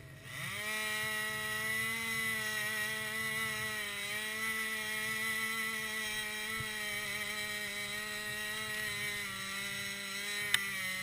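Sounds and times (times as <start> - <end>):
chainsaw at high revs: 0.0 - 11.0
sharp click: 10.5 - 10.7.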